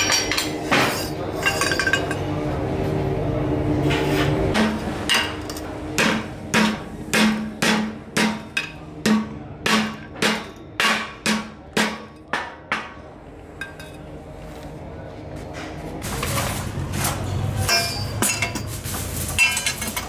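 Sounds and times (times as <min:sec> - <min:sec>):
hammer striking steel pipe: 0:06.0 - 0:13.0.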